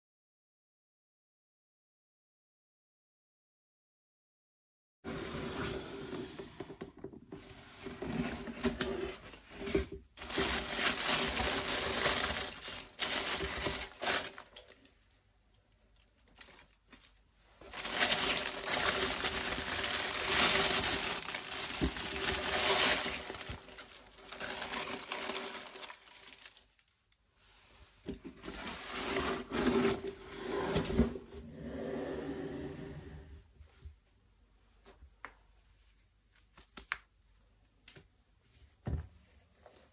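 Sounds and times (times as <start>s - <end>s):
tissue paper rustling: 8.0s - 15.2s, 15.9s - 30.1s.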